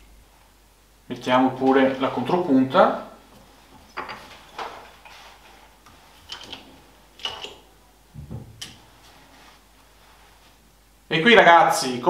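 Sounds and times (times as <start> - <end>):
dull knock: 8.2 - 8.6.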